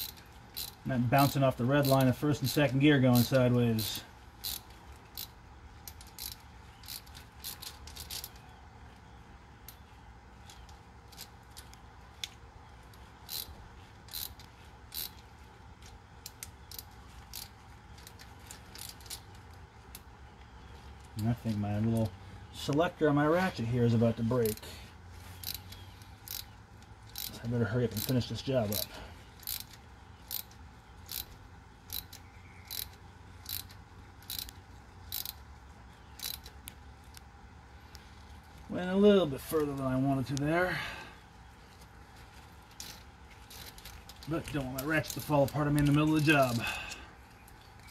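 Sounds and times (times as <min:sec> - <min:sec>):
ratchet rasps: 0:00.0 - 0:08.4, 0:10.4 - 0:20.1, 0:25.4 - 0:35.4, 0:36.1 - 0:36.7, 0:42.4 - 0:47.9.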